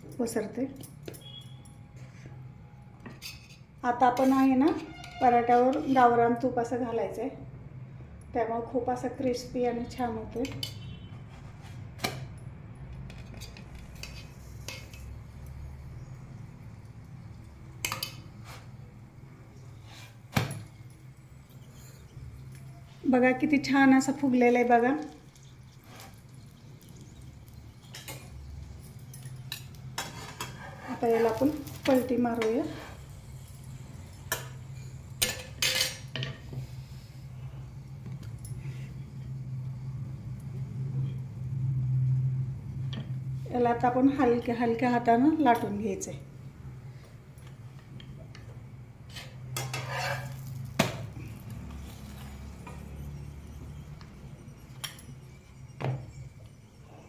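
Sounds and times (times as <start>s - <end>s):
spoon clinking against metal: 25.0s - 30.6s.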